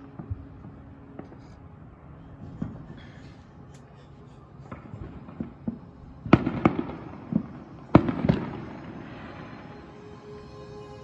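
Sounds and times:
loud firework bangs echoing: 4.6 - 9.7.

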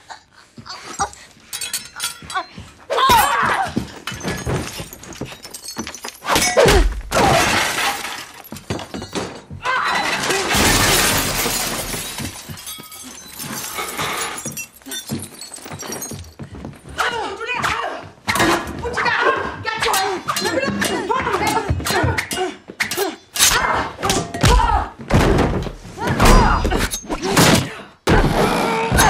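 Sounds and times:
bodies and furniture crashing: 3.7 - 16.4, 24.4 - 28.5
glass shattering: 4.0 - 16.4.

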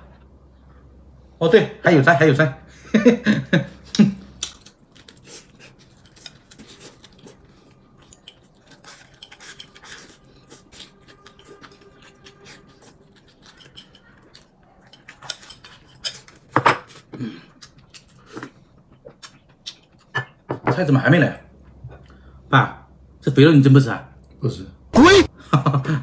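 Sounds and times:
chopsticks scraping a porcelain bowl: 8.2 - 16.4.

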